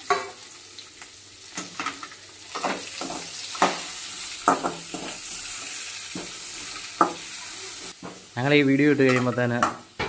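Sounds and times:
food sizzling in oil: 0:00.0 - 0:10.0.

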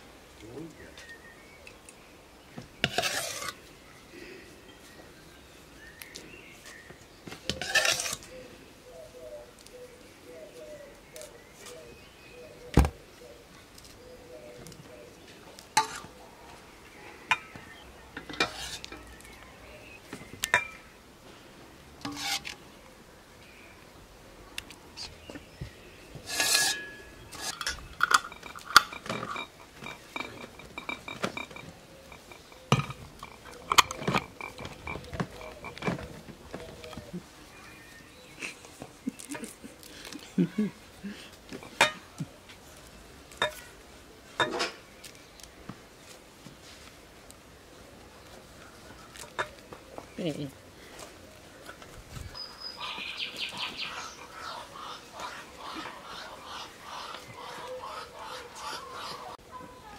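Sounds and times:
metal ladle clinking and scraping: 0:02.8 - 0:03.6, 0:07.5 - 0:08.3, 0:15.8 - 0:16.1, 0:18.2 - 0:19.1, 0:22.0 - 0:22.6, 0:26.2 - 0:36.0.

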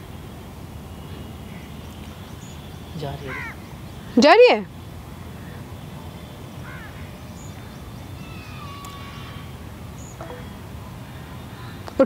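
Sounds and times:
low steady hum: 0:00.0 - 0:12.0
crow cawing faintly: 0:03.2 - 0:04.2, 0:06.6 - 0:09.6, 0:10.4 - 0:11.9.

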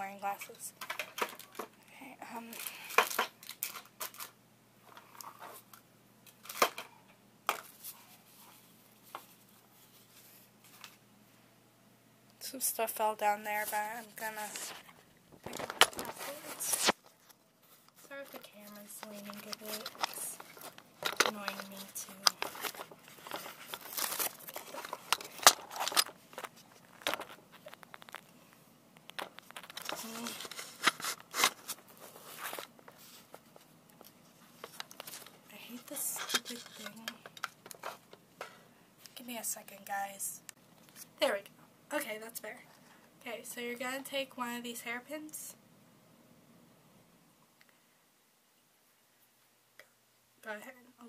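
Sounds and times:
handling clicks and rustles: 0:14.2 - 0:38.6.

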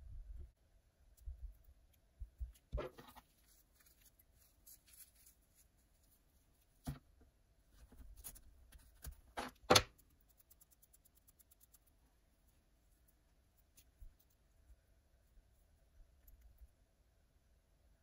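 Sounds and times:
fingers rustling hair and fur: 0:01.2 - 0:07.1, 0:07.7 - 0:09.4, 0:10.0 - 0:16.7.

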